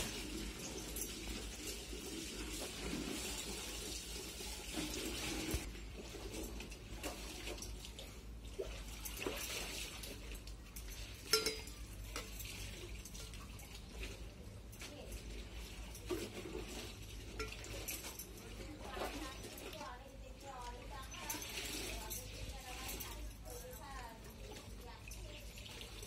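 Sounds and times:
water swishing in steel bowl: 0.0 - 26.0
fingers clinking on steel bowls: 10.7 - 13.2, 17.2 - 25.6.

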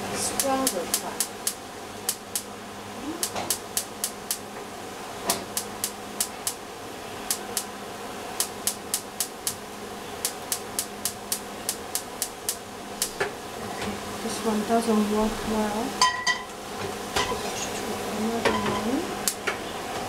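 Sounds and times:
steady hum: 0.0 - 20.0
gas hob igniter clicking: 0.4 - 2.5, 3.2 - 4.4, 5.3 - 6.6, 8.4 - 9.6, 10.2 - 13.3, 19.2 - 19.6.

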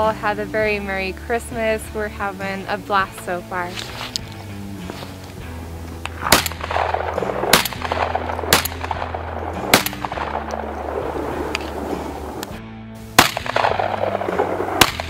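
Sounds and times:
background music: 0.0 - 15.0
shotgun shots: 6.1 - 12.4, 13.2 - 15.0.

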